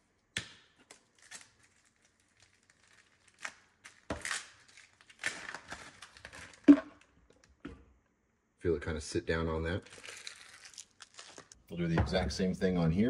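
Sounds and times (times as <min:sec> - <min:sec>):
plastic wrapping crinkling and tearing: 0:00.7 - 0:07.5, 0:09.6 - 0:11.6.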